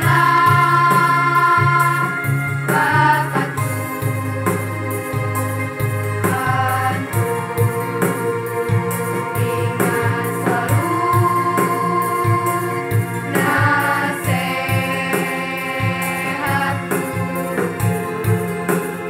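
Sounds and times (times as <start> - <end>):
girls' choir singing in unison: 0.0 - 3.8, 6.2 - 8.2, 9.0 - 17.8
accompaniment with steady beat: 0.0 - 19.0.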